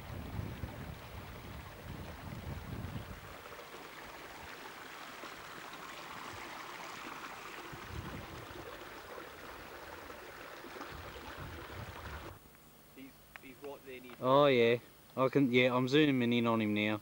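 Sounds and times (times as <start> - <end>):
wind buffeting microphone: 0.0 - 3.5, 7.7 - 9.0, 10.8 - 12.4
river water over rocks: 3.1 - 12.4.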